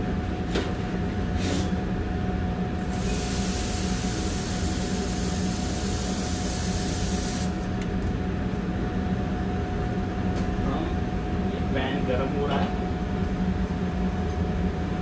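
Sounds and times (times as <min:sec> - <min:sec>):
kitchen ventilation hum: 0:00.0 - 0:15.0
water running from a tap: 0:02.9 - 0:07.5.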